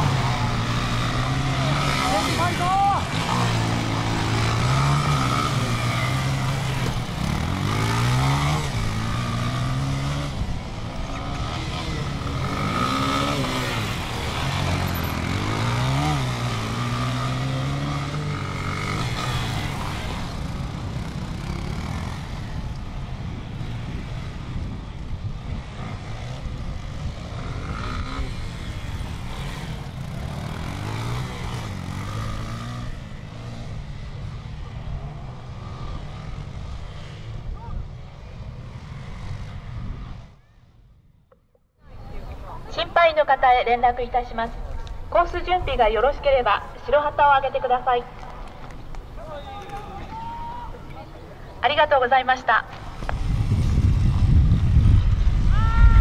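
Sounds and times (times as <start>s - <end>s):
motorcycle engines revving: 0.0s - 56.0s.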